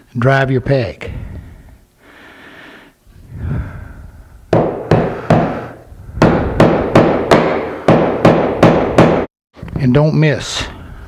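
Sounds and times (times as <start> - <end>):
hammer knocking wooden peg: 4.5 - 9.3.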